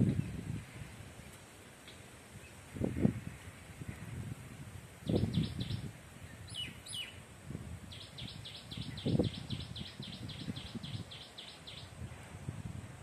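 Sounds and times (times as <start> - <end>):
wind rumble on microphone: 0.0 - 13.0
bird whistling calls: 5.1 - 5.8, 6.5 - 7.2, 7.9 - 11.9.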